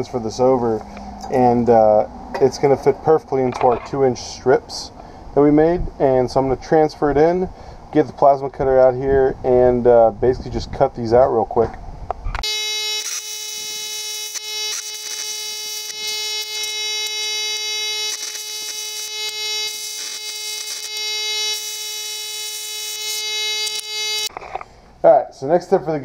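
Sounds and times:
crackles: 12.2 - 24.9
plasma cutter humming and hissing: 12.6 - 24.3.

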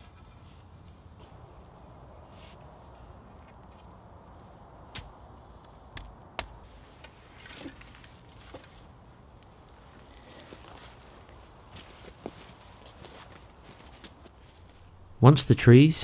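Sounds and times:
wooden stakes clacking: 4.9 - 11.0.

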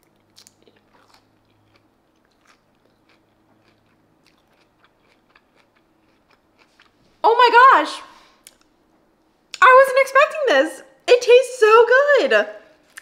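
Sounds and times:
crunchy chewing of salad: 0.0 - 7.2.

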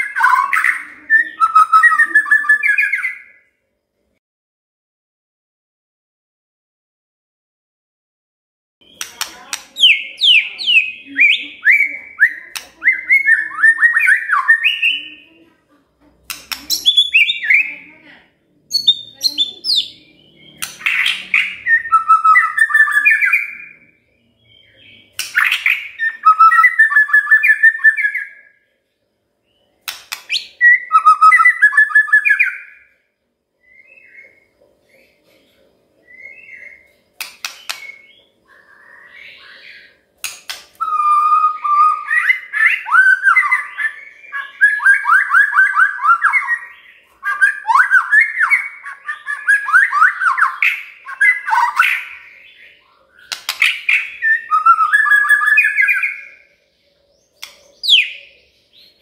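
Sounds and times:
bird singing whistled phrases: 0.0 - 3.5, 8.8 - 15.2, 16.5 - 17.9, 18.7 - 28.6, 30.3 - 32.9, 40.8 - 56.5, 57.4 - 59.0.

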